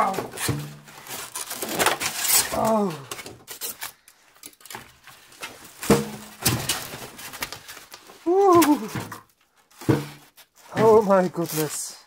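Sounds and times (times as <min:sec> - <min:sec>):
foam packing scraping: 0:00.0 - 0:04.0, 0:09.7 - 0:12.0.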